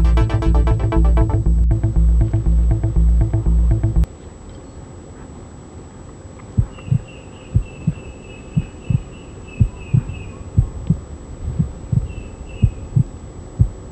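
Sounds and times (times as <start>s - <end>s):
heartbeat double thump: 0.0s - 4.1s, 6.6s - 7.0s, 8.6s - 13.8s.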